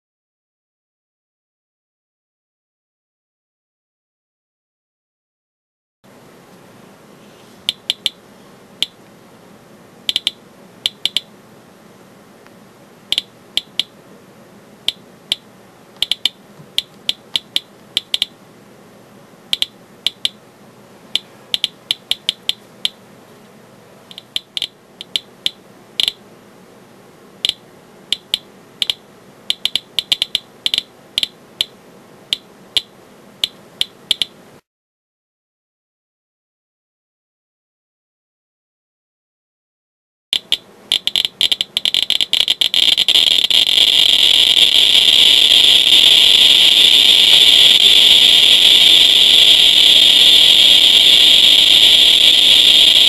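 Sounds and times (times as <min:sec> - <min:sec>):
geiger counter clicking: 0:07.7 - 0:08.2, 0:10.1 - 0:11.3, 0:13.1 - 0:13.9, 0:14.8 - 0:15.4, 0:16.0 - 0:18.4, 0:19.5 - 0:20.4, 0:21.1 - 0:23.0, 0:24.1 - 0:26.2, 0:27.4 - 0:34.4, 0:40.4 - 0:53.0.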